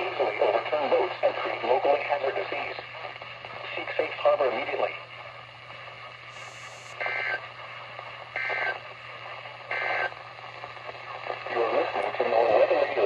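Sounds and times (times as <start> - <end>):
radio static: 0.0 - 13.0
buzzy data bursts: 6.3 - 7.4.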